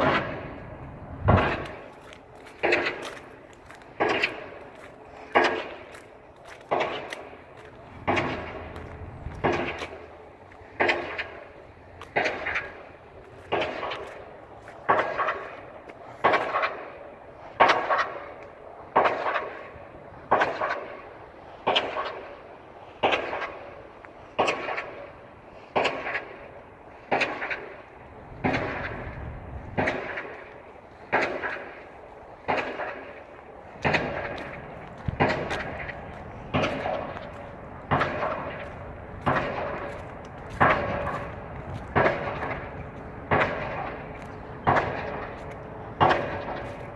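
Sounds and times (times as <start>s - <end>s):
pile driver hammer pounding: 1.2s - 15.6s, 29.7s - 30.4s, 32.4s - 33.1s, 33.8s - 46.9s.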